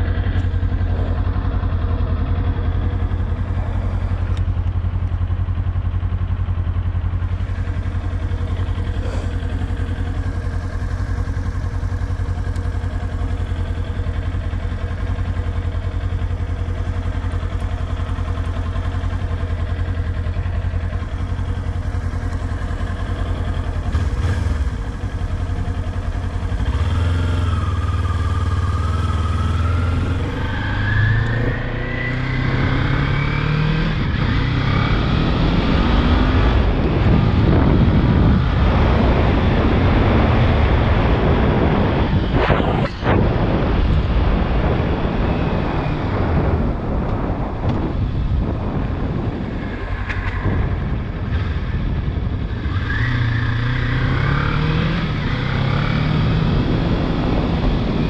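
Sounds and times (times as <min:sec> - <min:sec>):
motorcycle engine idling: 0:00.0 - 0:30.4.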